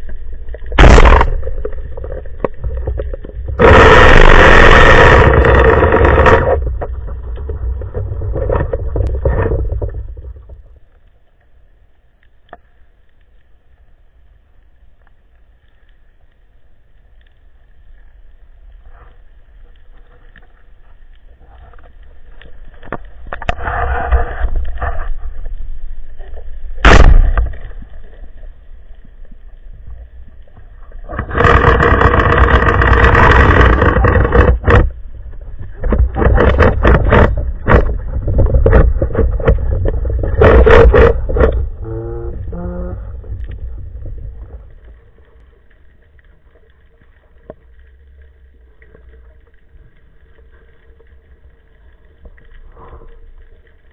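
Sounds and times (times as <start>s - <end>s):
speargun firing underwater: 0.7s - 1.6s, 26.8s - 27.7s.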